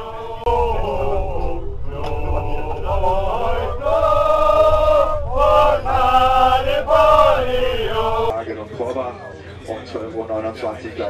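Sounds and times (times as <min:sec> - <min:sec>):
person singing long held notes: 0:00.0 - 0:08.3
steady low rumble: 0:00.0 - 0:08.3.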